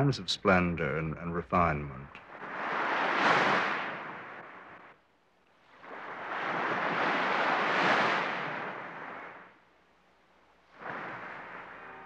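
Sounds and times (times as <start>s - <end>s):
surf washing up a sandy beach: 2.2s - 9.6s, 10.6s - 12.0s.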